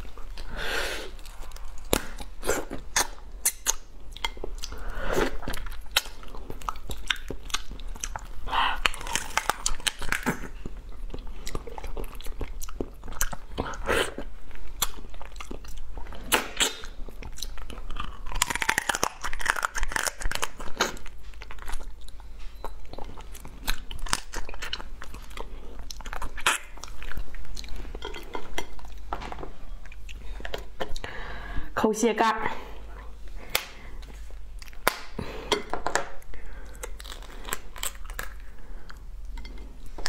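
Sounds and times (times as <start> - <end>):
person chewing crab shell: 0.0 - 31.2, 33.4 - 40.0.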